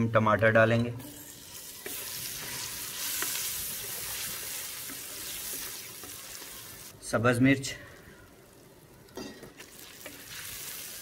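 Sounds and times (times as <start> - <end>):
tomatoes sizzling in hot oil: 1.0 - 11.0
wooden spatula stirring: 1.8 - 6.7.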